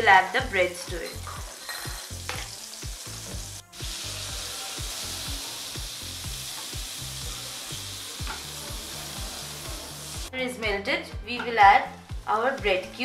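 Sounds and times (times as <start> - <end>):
butter sizzling in frying pan: 0.0 - 10.3
soft background music: 0.0 - 13.0.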